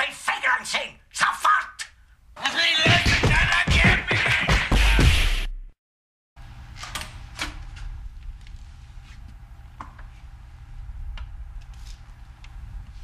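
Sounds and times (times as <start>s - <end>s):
low room tone hum: 6.4s - 13.0s.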